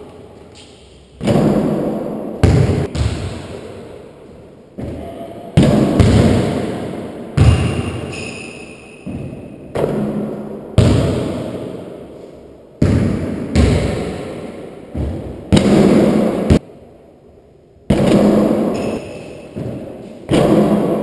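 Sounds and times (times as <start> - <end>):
basketball hitting hoop: 1.2 - 3.8, 5.6 - 11.7, 12.8 - 16.6, 17.9 - 21.0
basketball bouncing on hardwood floor: 2.4 - 3.6, 4.8 - 6.8, 7.4 - 8.1, 9.0 - 11.6, 12.8 - 14.3, 14.9 - 16.6.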